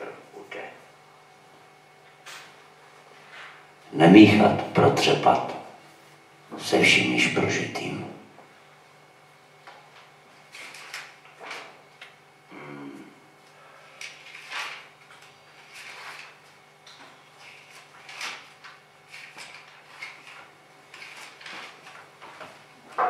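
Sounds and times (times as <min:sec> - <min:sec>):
book pages turning: 0:14.1 - 0:22.5.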